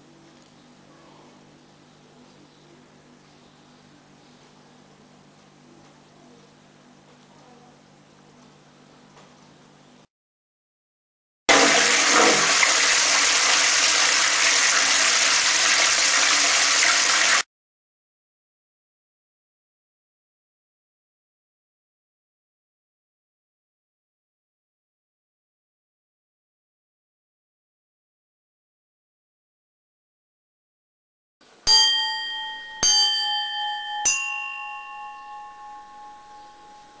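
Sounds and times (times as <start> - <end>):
bell-like chime notes: 31.7 - 37.0.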